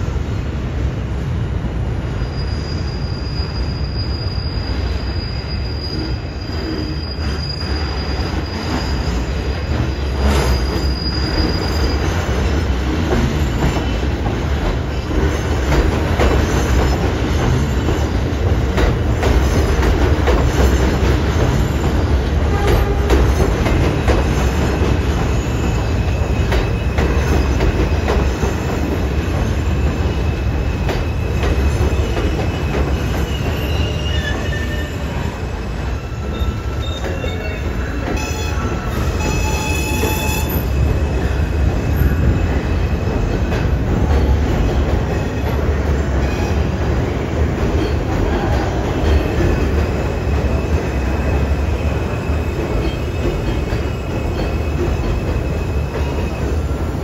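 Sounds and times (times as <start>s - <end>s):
train wheels rumbling on rail: 0.0s - 57.0s
wheel squeal: 2.1s - 14.0s, 19.3s - 43.1s.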